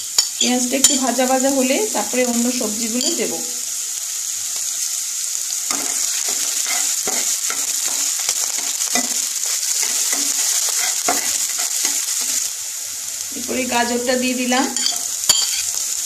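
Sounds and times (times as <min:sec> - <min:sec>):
onion sizzling in hot oil: 0:00.0 - 0:16.0
spatula scraping and stirring: 0:05.6 - 0:12.5, 0:14.7 - 0:15.8.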